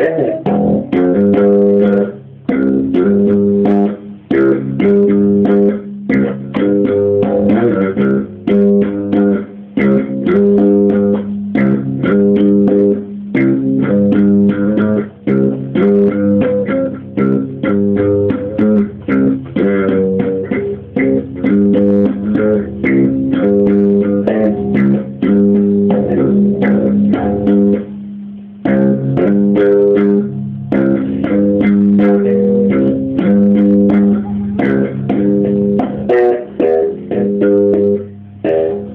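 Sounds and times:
slap bass guitar: 0.0s - 38.9s.

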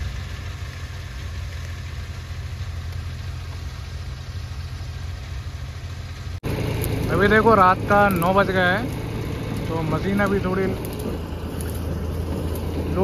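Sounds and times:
tractor engine droning: 0.0s - 13.0s.

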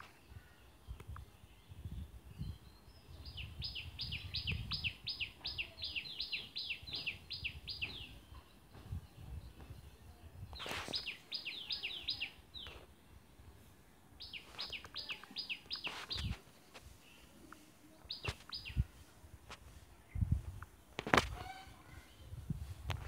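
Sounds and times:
bird chirping: 0.0s - 13.0s, 14.2s - 19.1s.

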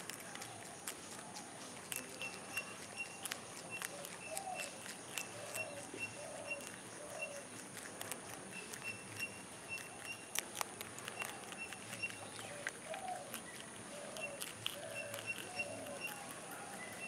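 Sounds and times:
rabbits munching crunchy stems: 0.0s - 17.0s
faint high chirp: 2.0s - 7.5s, 8.5s - 10.4s, 11.2s - 17.0s.

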